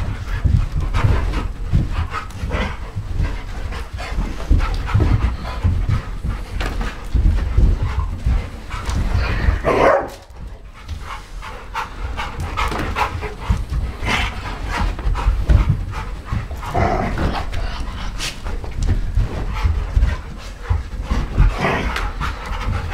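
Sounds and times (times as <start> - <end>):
dogs panting: 0.0 - 22.9
dogs scrambling knocks and clicks: 0.0 - 22.9
dogs barking: 9.6 - 10.3.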